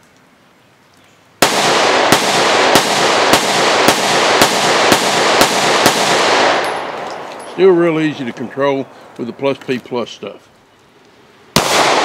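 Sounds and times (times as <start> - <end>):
pistol shots with echo: 1.4 - 8.4, 11.6 - 12.0.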